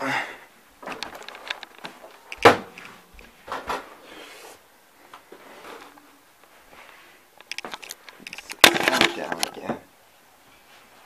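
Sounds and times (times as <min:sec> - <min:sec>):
handling rustling: 0:07.4 - 0:09.7.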